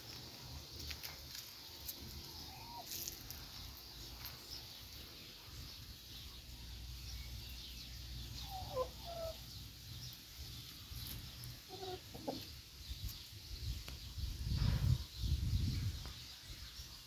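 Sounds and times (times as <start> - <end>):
chickens clucking: 8.2 - 13.2.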